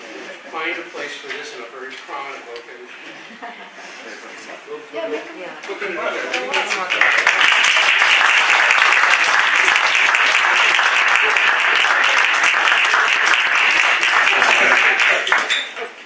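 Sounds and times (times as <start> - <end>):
audience applauding: 6.2 - 15.9.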